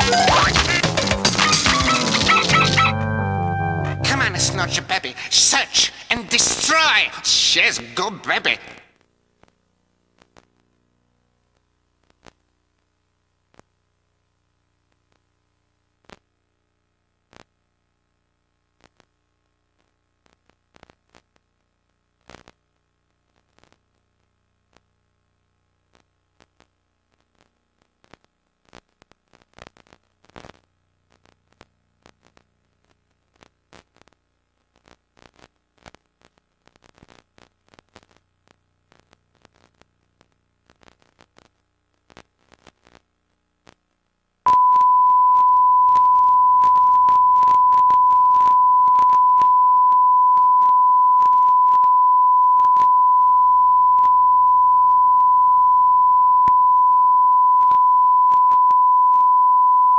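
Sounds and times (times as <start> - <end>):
videotape clicks and crackles: 0.0 - 2.9, 25.9 - 43.9
steady test tone: 2.7 - 5.1, 44.5 - 59.9.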